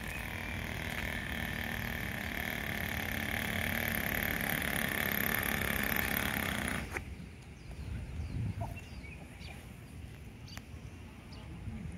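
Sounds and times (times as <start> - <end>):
model boat engine whine: 0.0 - 7.1.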